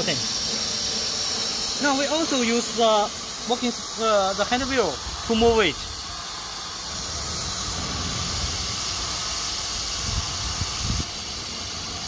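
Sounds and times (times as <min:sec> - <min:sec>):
machine hiss: 0:00.0 - 0:12.0
low rumble of axis drives: 0:03.4 - 0:12.0.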